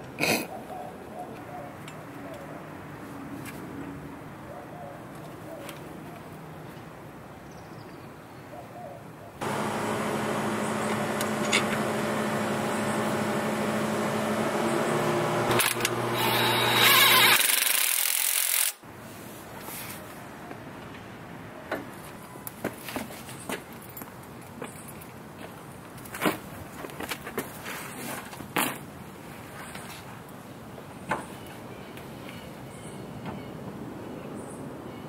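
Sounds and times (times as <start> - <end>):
power tool motor whirring: 9.4 - 18.8.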